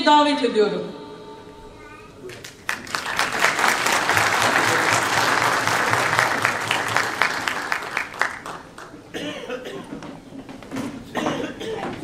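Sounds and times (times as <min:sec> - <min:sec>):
audience applauding: 0:02.3 - 0:09.1
people coughing: 0:09.0 - 0:10.2, 0:11.0 - 0:12.0.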